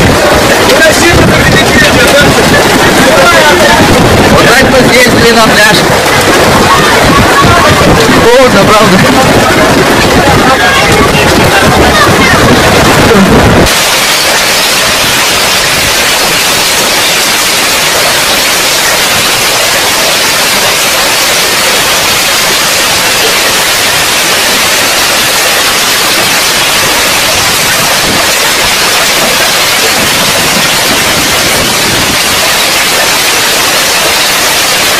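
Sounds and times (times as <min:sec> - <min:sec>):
heavy hail pelting grass and pavement: 0:00.0 - 0:34.9.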